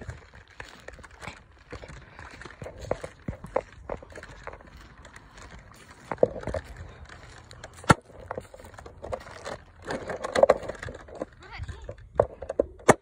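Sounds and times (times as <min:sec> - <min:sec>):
footsteps crunching on pine needles: 0:00.0 - 0:10.1.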